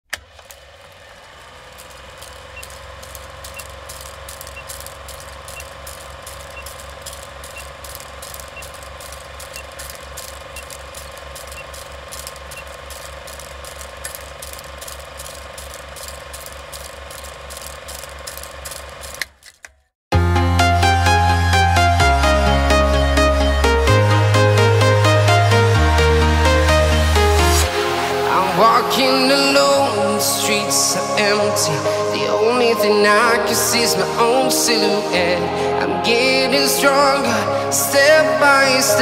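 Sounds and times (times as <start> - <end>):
film projector clattering: 0.0 - 19.8
electronic dance music: 20.1 - 39.0.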